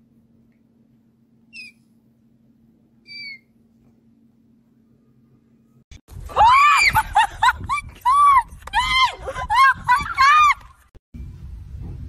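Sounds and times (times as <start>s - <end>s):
faint steady hum: 0.0s - 5.9s
loud cry: 6.3s - 7.0s.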